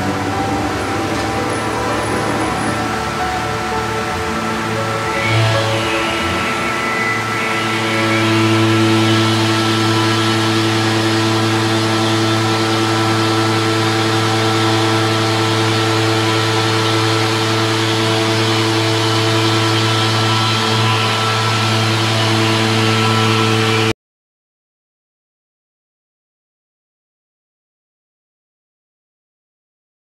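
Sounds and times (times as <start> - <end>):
stone cutting machine hum: 0.0 - 23.9.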